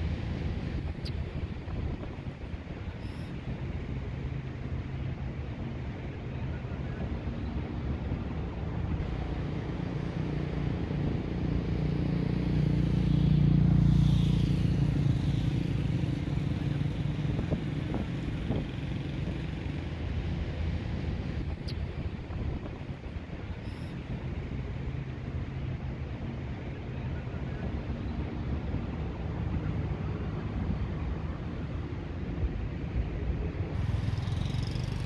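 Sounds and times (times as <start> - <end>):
vehicle engine passing by: 33.8 - 35.0.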